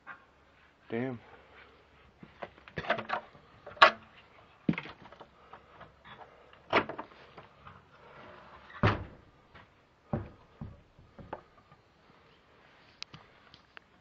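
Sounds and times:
wooden door banging and scraping: 6.7s - 7.2s, 8.7s - 11.5s.

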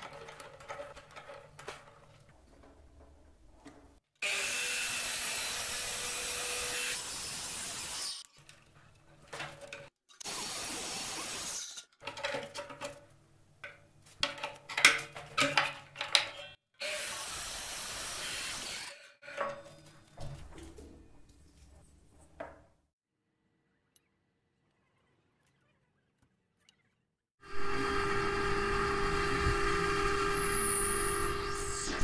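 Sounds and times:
knocks and clatter of handling: 0.0s - 4.0s, 8.3s - 10.0s, 11.7s - 16.6s, 19.2s - 22.8s
miter saw cutting wood: 4.2s - 8.2s, 16.8s - 19.1s, 27.4s - 32.0s.

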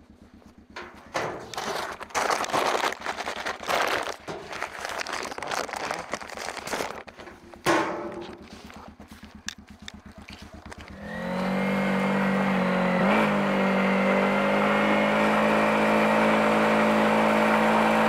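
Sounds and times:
engine idling: 0.0s - 13.2s
loud rustling: 0.8s - 11.0s
metal mailbox door clanking shut: 7.6s - 8.2s.

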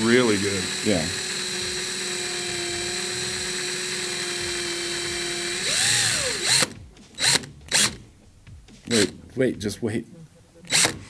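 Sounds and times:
cordless drill motor running: 0.0s - 8.0s, 10.7s - 11.0s.

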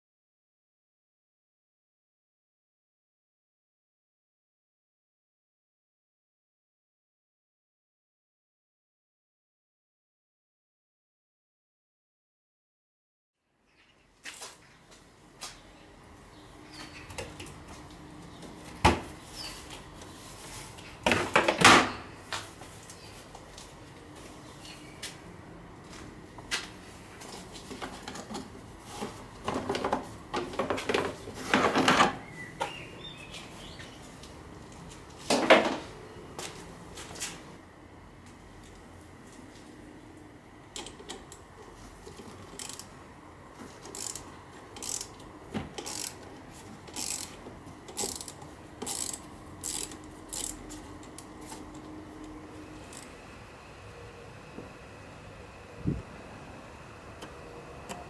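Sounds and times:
ratchet wrench clicking: 42.5s - 42.9s, 43.8s - 45.2s, 45.8s - 46.2s, 46.9s - 51.3s, 52.9s - 53.1s.

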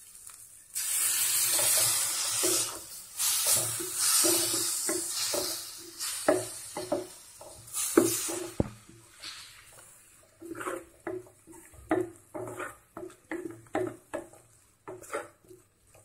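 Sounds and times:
water splashing into hot pan: 0.0s - 9.9s
loud sizzle: 0.0s - 16.0s
spatula scraping pan: 1.0s - 16.0s.

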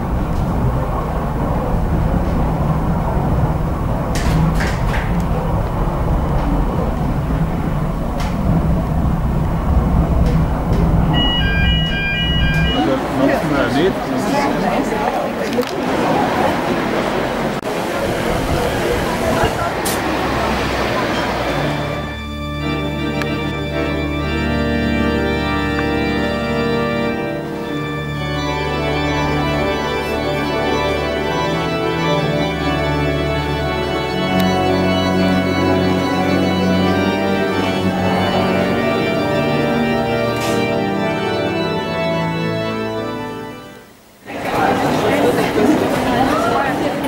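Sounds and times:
organ playing slow chords: 0.0s - 4.2s, 5.5s - 14.6s, 20.0s - 44.2s.

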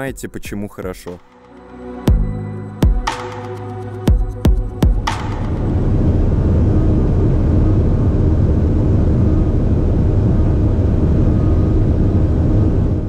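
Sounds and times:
car interior drone at speed: 4.2s - 13.0s.

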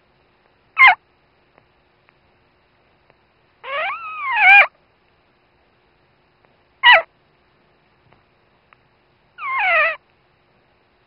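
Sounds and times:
puppy squeaking and crying: 0.8s - 1.0s, 3.6s - 4.7s, 6.8s - 7.1s, 9.4s - 10.0s.

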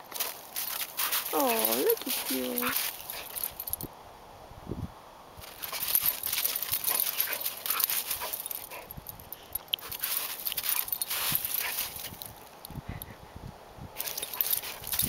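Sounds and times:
paws crunching in snow: 0.0s - 3.8s, 5.4s - 12.5s, 14.0s - 15.0s.

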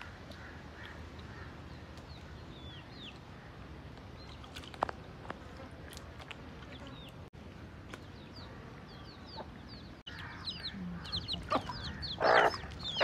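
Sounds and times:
hens clucking: 10.2s - 13.0s
hen squawks: 10.6s - 13.0s.

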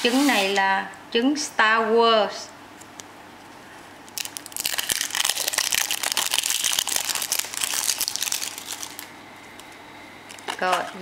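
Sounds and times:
foil wrapper crinkling: 4.0s - 9.7s.

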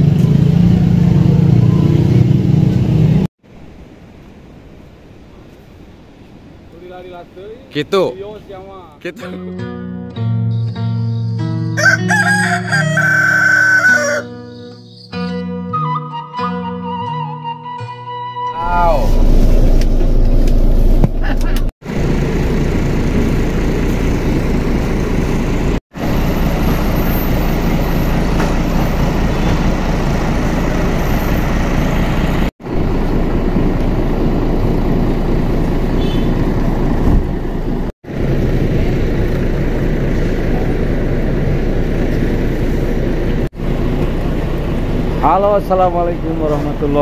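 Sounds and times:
faint outdoor noise: 3.4s - 9.3s
diesel bus engine idling: 18.9s - 47.0s.

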